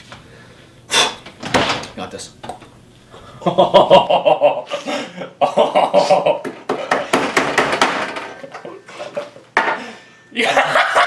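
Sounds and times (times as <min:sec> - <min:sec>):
man giggling: 0:03.4 - 0:07.0, 0:08.4 - 0:09.5, 0:10.4 - 0:11.0.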